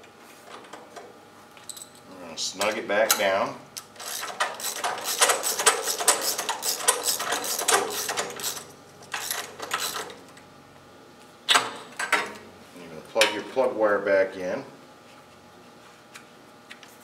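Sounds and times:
socket wrench ratcheting: 0:04.0 - 0:08.6.

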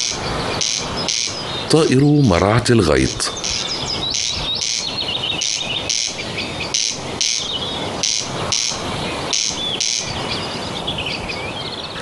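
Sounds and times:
corncrake rasping call: 0:00.0 - 0:01.9, 0:03.1 - 0:10.2.

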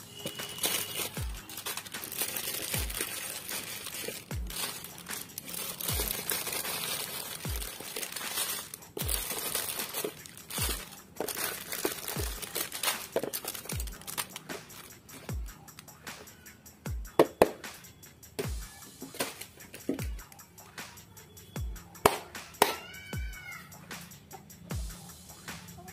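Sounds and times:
plastic wrappers crinkling: 0:00.0 - 0:15.9, 0:19.0 - 0:20.3
background music with bass beat: 0:00.0 - 0:25.9.

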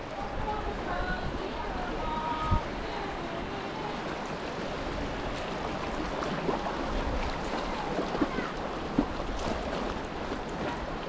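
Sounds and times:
creek water rushing: 0:00.0 - 0:11.0
water splashes: 0:00.0 - 0:11.0
wind: 0:00.0 - 0:11.0.

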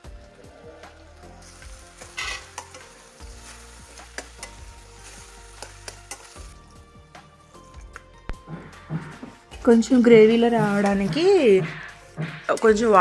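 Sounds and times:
curry sizzling in a pan: 0:00.0 - 0:07.9, 0:09.0 - 0:13.0
spoon scraping and clinking on pan: 0:02.0 - 0:03.0, 0:04.0 - 0:06.6.

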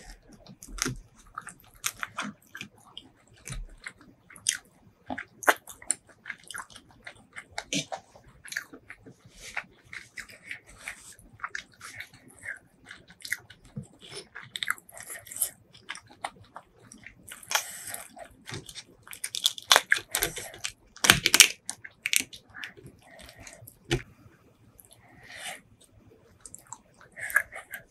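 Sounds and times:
chewing food in sauce: 0:00.0 - 0:27.9
prawn shell cracking: 0:18.5 - 0:22.4.

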